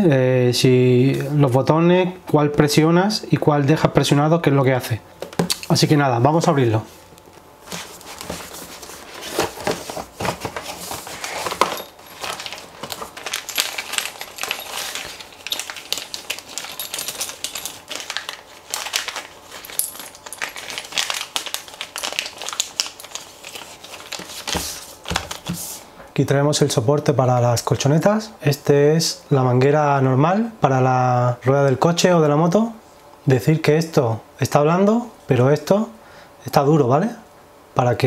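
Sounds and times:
plastic bags crinkling: 0:07.7 - 0:25.6.

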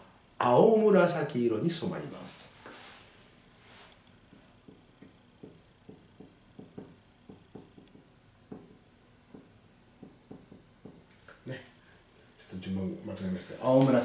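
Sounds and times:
marker pen writing on whiteboard: 0:04.3 - 0:11.1.

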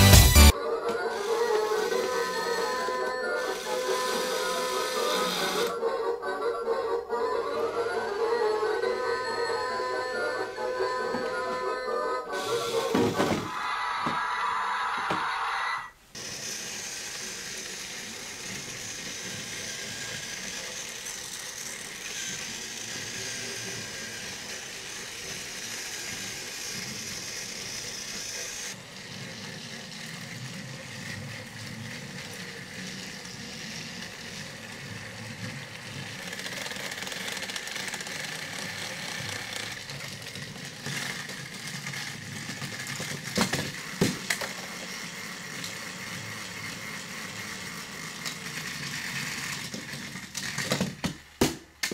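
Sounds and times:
toy train motor whine: 0:00.0 - 0:51.0
wheels rattling on plastic track: 0:16.2 - 0:51.9.

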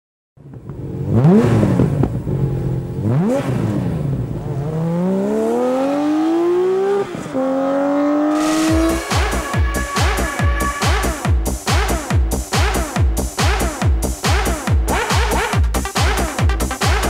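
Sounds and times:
car engine revving: 0:00.4 - 0:17.0
car accelerating through gears: 0:00.6 - 0:11.3.

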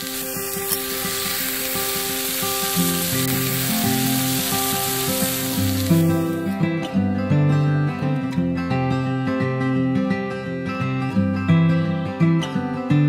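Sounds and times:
sausages sizzling on grill: 0:00.0 - 0:06.6
acoustic guitar music: 0:00.0 - 0:13.0.

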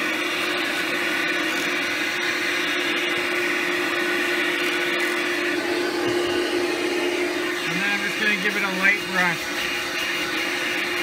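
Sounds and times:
vacuum motor humming: 0:00.0 - 0:11.0.

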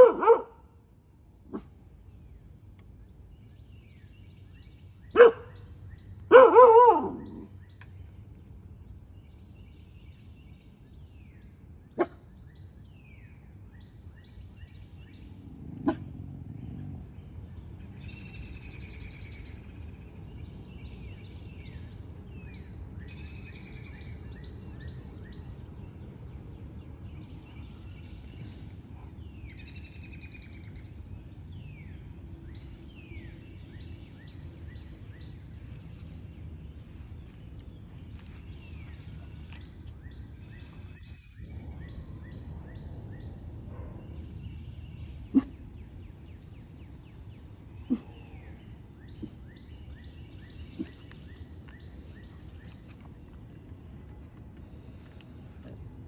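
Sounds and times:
dog barking: 0:00.0 - 0:00.6, 0:05.2 - 0:05.6, 0:06.3 - 0:07.5, 0:12.0 - 0:12.2, 0:15.7 - 0:16.1, 0:43.7 - 0:44.2, 0:45.3 - 0:45.6, 0:47.9 - 0:48.2
birds singing: 0:00.0 - 0:56.0
outdoor background hiss: 0:00.0 - 0:56.0.

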